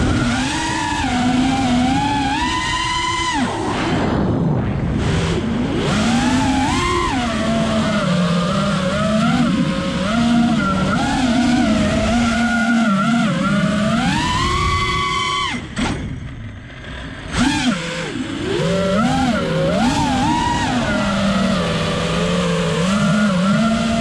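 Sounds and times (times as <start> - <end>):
quadcopter motors whining: 0.0 - 24.0.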